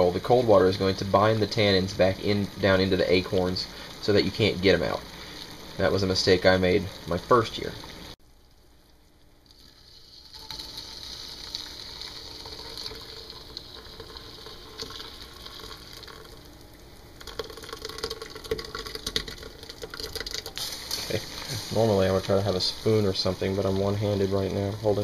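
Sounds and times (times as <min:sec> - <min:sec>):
water pouring through a strainer: 0:09.4 - 0:25.0.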